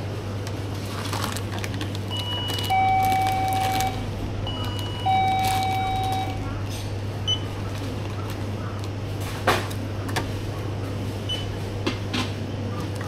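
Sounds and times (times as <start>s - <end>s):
steady low hum: 0.0s - 13.0s
electronic beeper two-tone signal: 2.7s - 6.4s.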